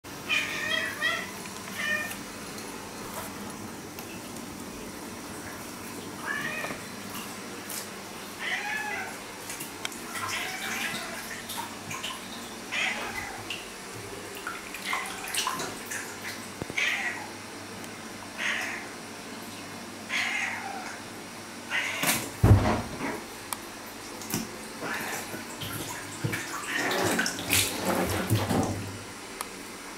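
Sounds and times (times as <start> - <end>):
cat meowing: 0.3 - 2.1, 6.2 - 6.8, 8.4 - 9.1.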